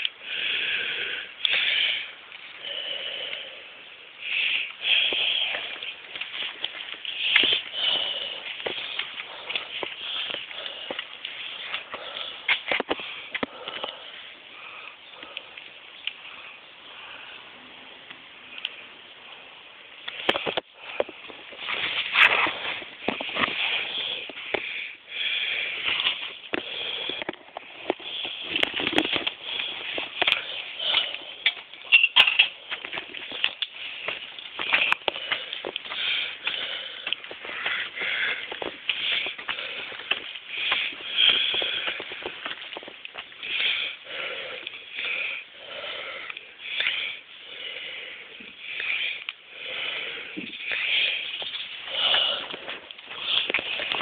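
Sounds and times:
person breathing heavily: 0.0s - 54.0s
rustling and clicks: 25.8s - 43.6s, 50.4s - 54.0s.

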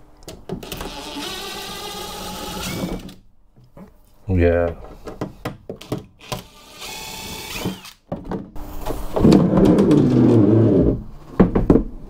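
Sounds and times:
cordless drill whirring: 0.6s - 3.2s, 6.2s - 8.0s.

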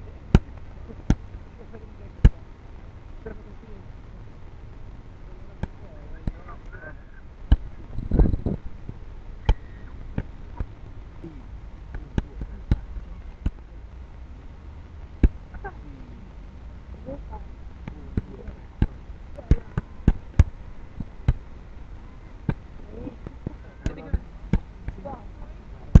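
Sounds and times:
kicks and punches slapping pads: 7.5s - 7.7s, 15.2s - 15.4s, 17.8s - 21.4s.

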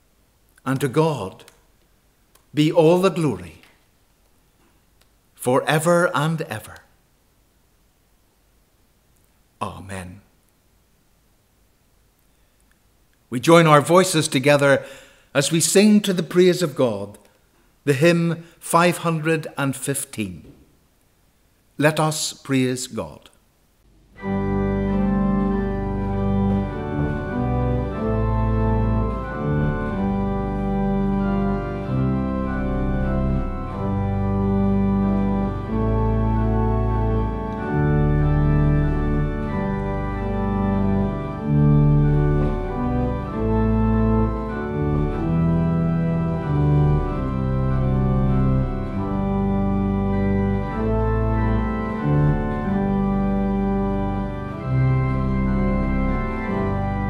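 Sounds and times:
organ playing hymn chords: 0.0s - 1.6s, 2.5s - 3.8s, 13.3s - 17.2s, 17.8s - 20.6s, 24.1s - 57.0s.

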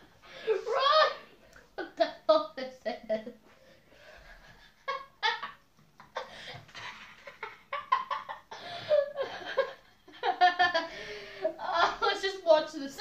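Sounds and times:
boy laughing: 1.8s - 3.4s.

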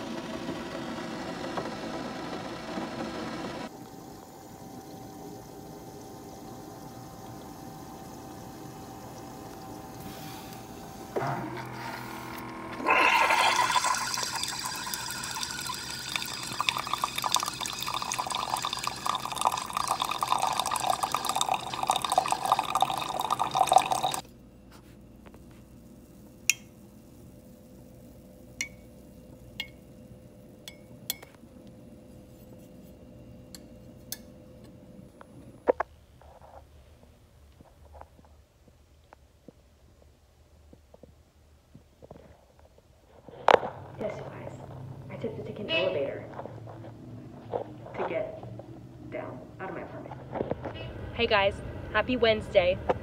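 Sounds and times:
coffee maker brewing: 0.0s - 36.7s, 41.8s - 51.5s
faint hum: 3.6s - 53.0s
coffee pouring into mug: 3.8s - 24.3s.

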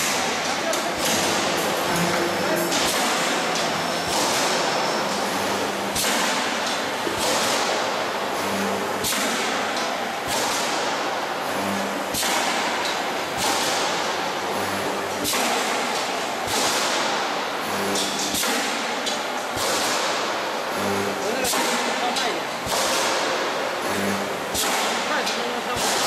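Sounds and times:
loud steady machinery hiss: 0.0s - 26.0s
sharp cracks: 22.6s - 23.5s.

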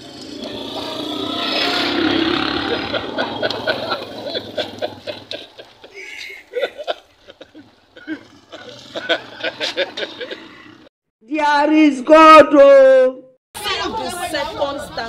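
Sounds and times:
street noise: 0.0s - 13.0s, 13.6s - 15.0s
man and woman laughing: 2.6s - 10.8s.

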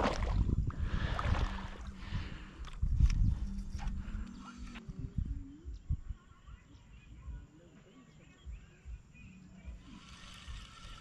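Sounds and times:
wind buffeting microphone: 0.0s - 6.2s
faint bird chirps: 3.2s - 11.0s.

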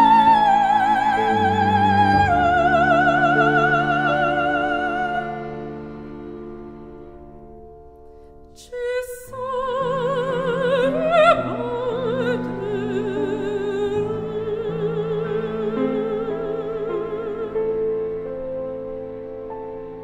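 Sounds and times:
operatic voice with vibrato: 8.6s - 18.0s.

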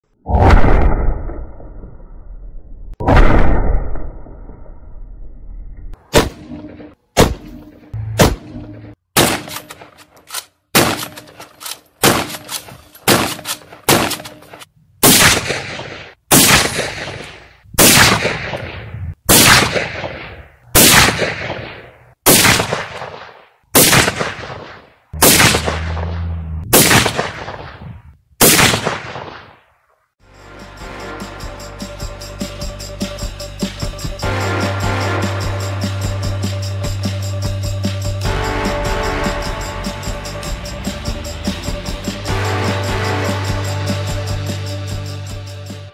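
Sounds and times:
rifle shots with echo: 9.2s - 9.7s, 10.8s - 11.3s, 12.0s - 14.4s, 15.0s - 26.1s, 26.7s - 29.6s.

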